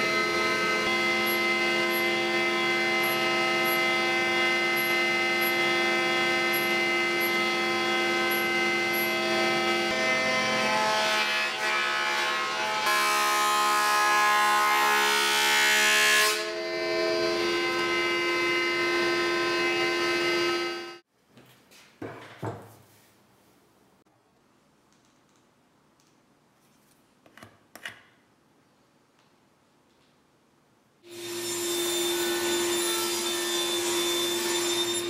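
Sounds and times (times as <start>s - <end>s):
thickness planer whining: 0.0s - 21.0s, 31.1s - 35.0s.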